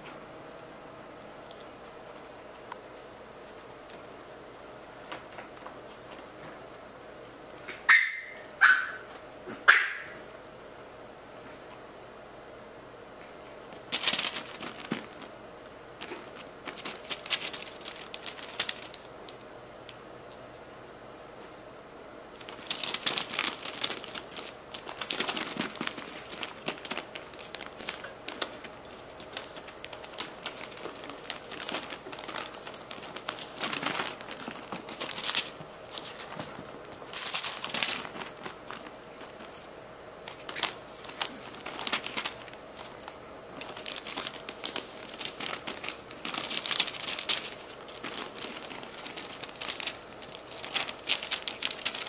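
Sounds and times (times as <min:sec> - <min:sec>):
puppies scratching fabric bedding: 0:13.6 - 0:19.1, 0:22.3 - 0:52.0.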